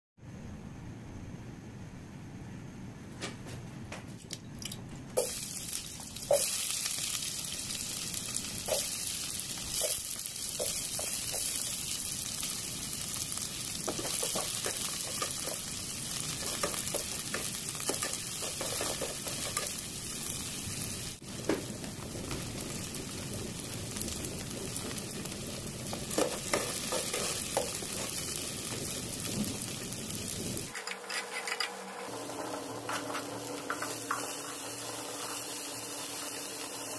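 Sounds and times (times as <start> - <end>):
onions sizzling in hot oil: 5.2 - 31.2, 31.8 - 36.9
metal spatula scraping a pot: 30.7 - 31.9.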